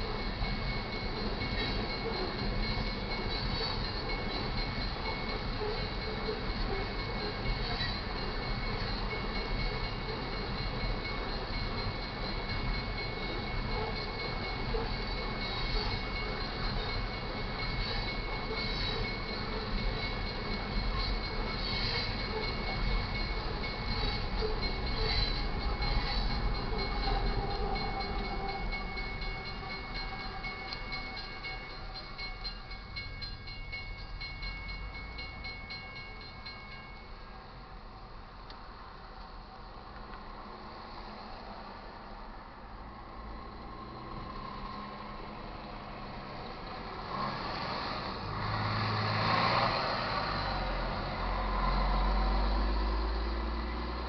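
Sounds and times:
crossing warning bell ringing: 0:00.0 - 0:54.0
freight train rumbling past: 0:00.0 - 0:54.0
road vehicles passing: 0:37.5 - 0:54.0.

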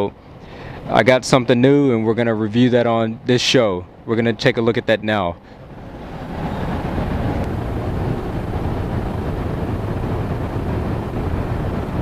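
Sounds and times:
traffic: 0:05.4 - 0:12.0
wind on microphone: 0:05.6 - 0:12.0.

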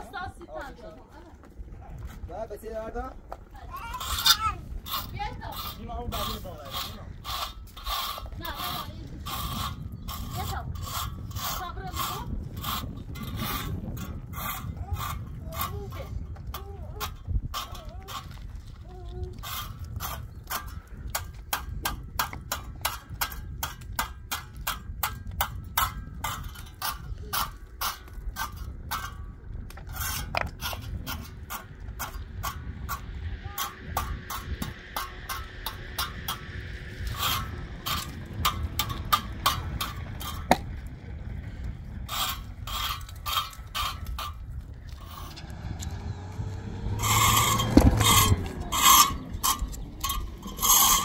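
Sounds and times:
low rumble: 0:28.0 - 0:51.0.

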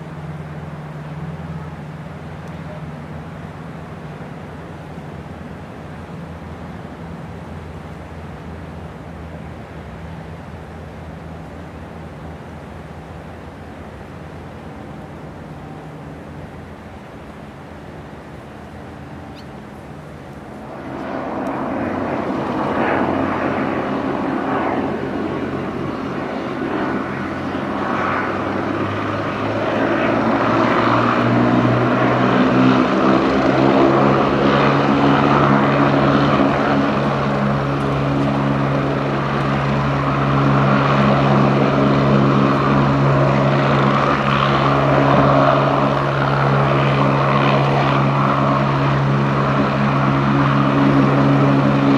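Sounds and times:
helicopter turbine whine: 0:00.0 - 0:51.9
helicopter rotor beat: 0:17.9 - 0:51.9.

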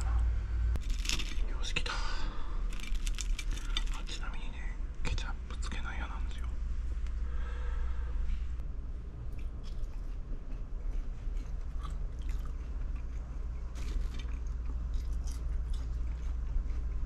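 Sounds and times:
low hum: 0:00.0 - 0:17.0
person chewing crunchy fries: 0:00.8 - 0:01.7, 0:02.6 - 0:04.3, 0:09.3 - 0:17.0.

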